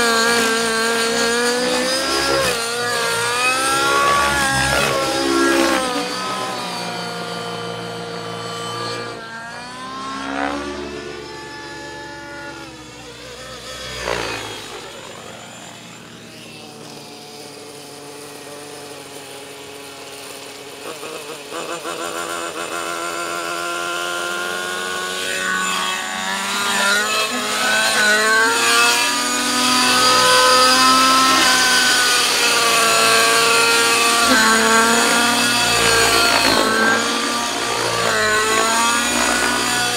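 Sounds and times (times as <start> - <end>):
model helicopter engine and rotor: 0.0 - 39.9.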